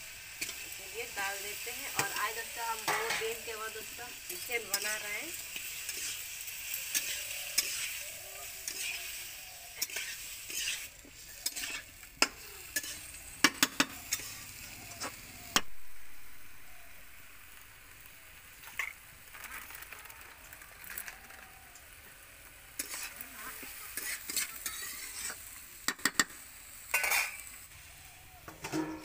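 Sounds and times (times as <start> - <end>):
chicken sizzling in hot oil: 0.0 - 29.0
metal spatula scraping a pan: 0.2 - 15.2, 22.8 - 27.6, 28.5 - 29.0.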